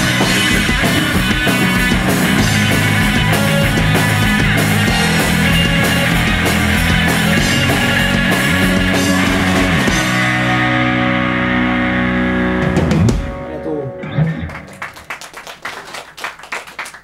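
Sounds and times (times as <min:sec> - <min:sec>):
electric guitar chord: 0:00.0 - 0:14.8
bass guitar: 0:00.0 - 0:15.3
hand claps: 0:14.4 - 0:17.0.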